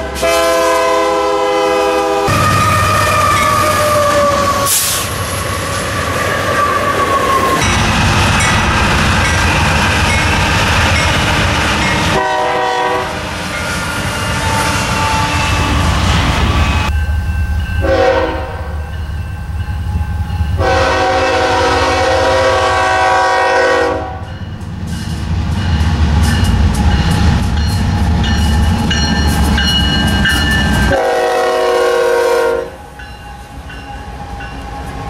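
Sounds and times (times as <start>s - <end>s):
locomotive horn blowing: 0.0s - 5.1s, 12.0s - 16.9s, 17.8s - 18.8s, 20.6s - 24.3s, 30.8s - 32.9s
train rumbling and clattering past: 0.0s - 35.0s.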